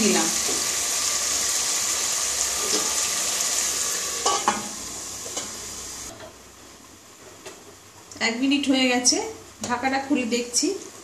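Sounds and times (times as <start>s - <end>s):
chicken sizzling in oil: 0.0s - 6.1s.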